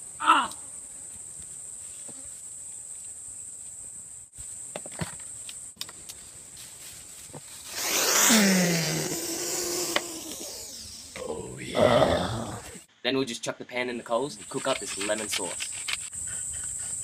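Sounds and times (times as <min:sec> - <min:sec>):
high-pitched insect drone: 0:07.7 - 0:11.6.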